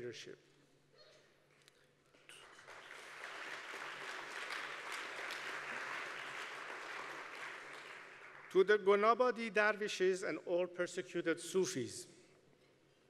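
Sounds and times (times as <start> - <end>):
audience applauding: 2.3 - 8.6.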